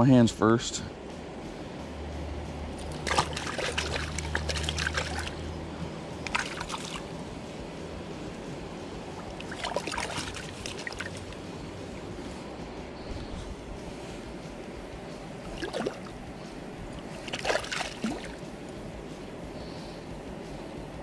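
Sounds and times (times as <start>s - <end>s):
creek water splashing: 2.7s - 7.2s, 9.0s - 12.1s, 15.4s - 18.6s.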